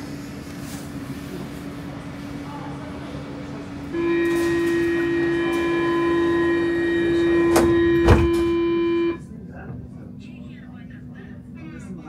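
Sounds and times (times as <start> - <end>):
metro train high-pitched squeal: 3.9 - 9.2.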